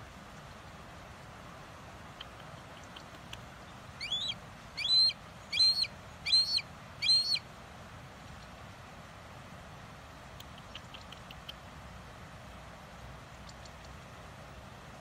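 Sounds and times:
hawk calling: 4.0s - 7.4s.

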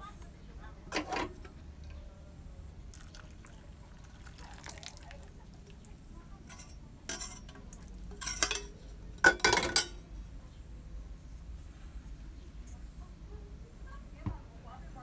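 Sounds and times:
liquid splashing into metal bowl: 2.9s - 8.7s.

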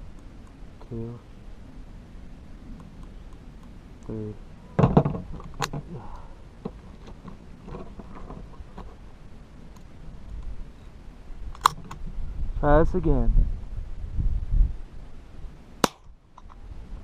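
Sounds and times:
sharp crack: 15.8s - 16.5s.

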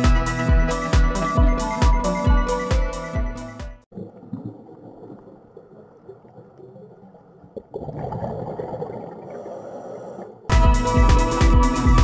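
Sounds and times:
muffled underwater rushing: 3.9s - 10.5s.

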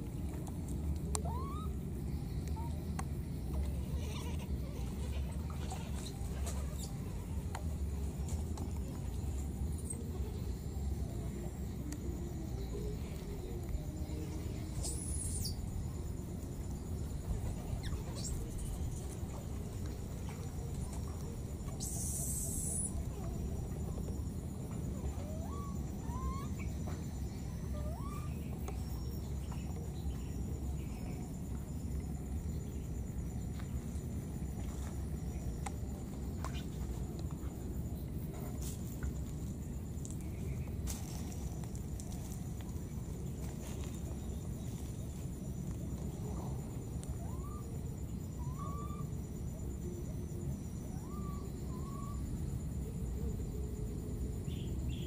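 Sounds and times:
steady low rumble: 0.0s - 48.5s
high-pitched insect hum: 0.0s - 55.0s
faint rising bird calls: 1.1s - 2.8s, 24.9s - 28.8s, 47.1s - 49.2s.

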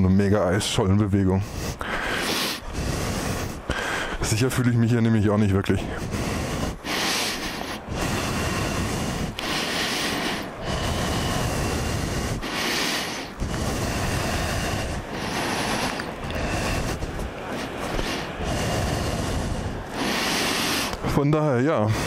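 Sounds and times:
hiss: 1.4s - 4.2s, 5.9s - 21.1s.

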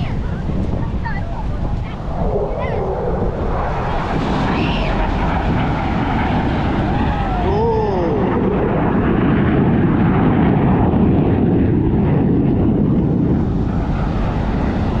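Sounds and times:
aircraft roar: 0.0s - 15.0s
breaking surf: 2.0s - 9.0s.

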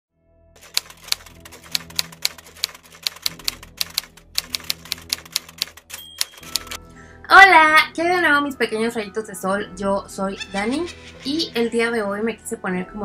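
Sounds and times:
typewriter keys clacking: 0.6s - 6.8s.

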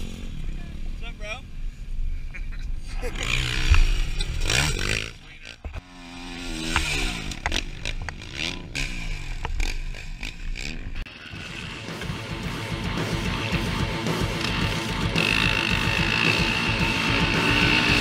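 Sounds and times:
dirt bike engines revving: 0.0s - 18.0s
music: 11.1s - 18.0s.

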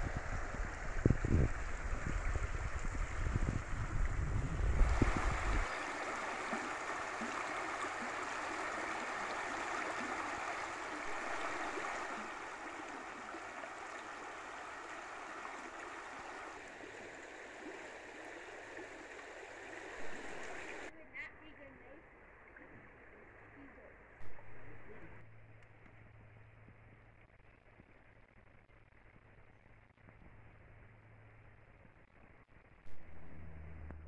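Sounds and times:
low rumble on microphone: 0.0s - 16.6s, 22.5s - 34.0s
creek rushing over stones: 0.0s - 21.0s.

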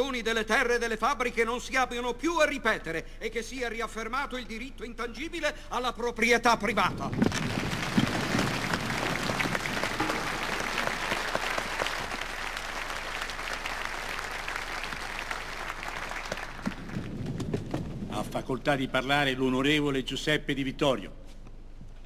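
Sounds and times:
crowd applauding: 7.2s - 17.4s.

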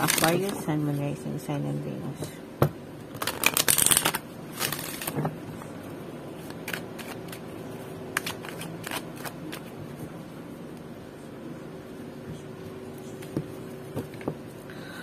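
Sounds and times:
cards shuffled by hand: 0.0s - 0.6s, 3.1s - 5.3s, 6.4s - 9.8s.

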